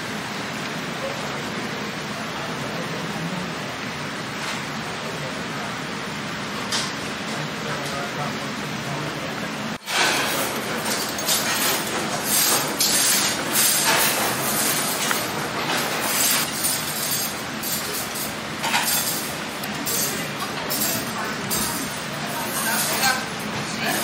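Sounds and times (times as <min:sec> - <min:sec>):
restaurant din: 0:00.0 - 0:24.0
utensils clinking on tableware: 0:09.8 - 0:24.0.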